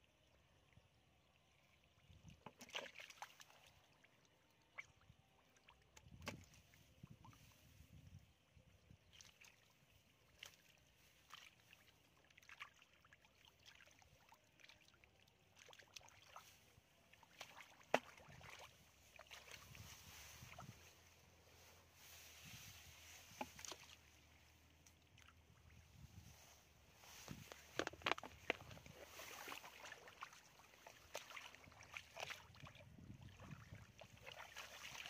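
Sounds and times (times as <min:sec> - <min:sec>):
squelching and splashing in mud: 0:02.2 - 0:05.0, 0:09.1 - 0:21.0, 0:22.3 - 0:35.0.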